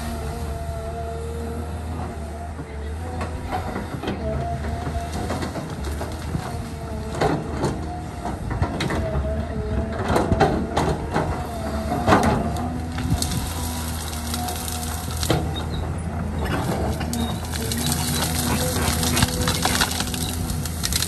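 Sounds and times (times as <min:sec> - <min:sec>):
excavator engine hum and whine: 0:00.0 - 0:21.0
branches cracking and snapping: 0:04.7 - 0:09.0, 0:09.9 - 0:15.7, 0:16.5 - 0:21.0.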